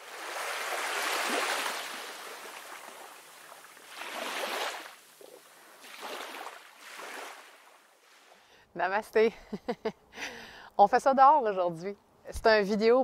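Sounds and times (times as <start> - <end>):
sea waves washing in: 0.0 - 8.5.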